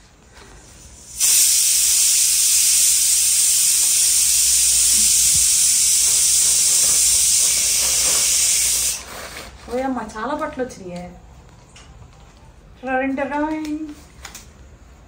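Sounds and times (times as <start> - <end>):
loud steady hiss: 0.4 - 9.6.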